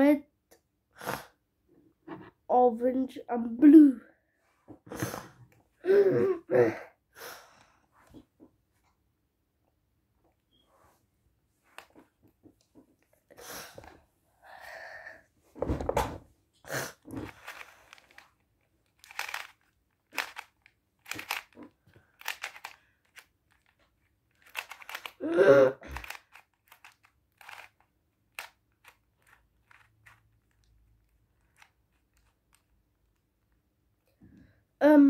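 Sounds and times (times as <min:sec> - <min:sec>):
puzzle cube clicking and rattling: 0:17.0 - 0:33.5.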